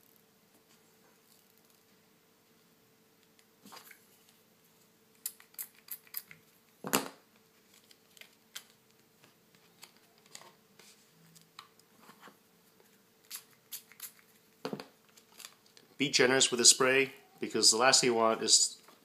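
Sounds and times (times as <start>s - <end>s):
plastic film crackling: 15.1s - 15.8s.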